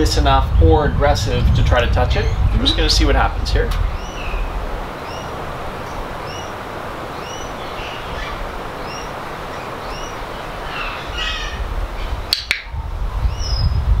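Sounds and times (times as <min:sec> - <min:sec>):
steady hiss: 0:00.0 - 0:13.5
birds chirping: 0:01.3 - 0:13.9
harsh bird call: 0:06.0 - 0:12.8.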